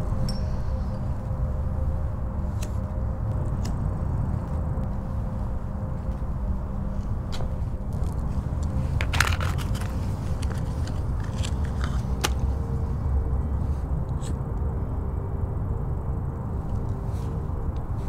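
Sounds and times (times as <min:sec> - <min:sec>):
steady low outdoor rumble: 0:00.0 - 0:18.0
small clicks and scrapes: 0:07.9 - 0:12.5.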